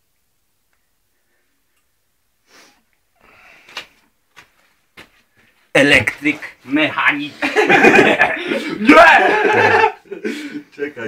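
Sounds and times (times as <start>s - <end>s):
sharp breath: 2.4s - 3.9s.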